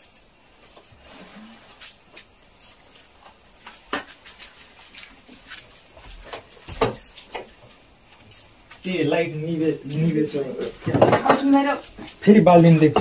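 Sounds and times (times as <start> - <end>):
cricket trill: 0.0 - 13.0.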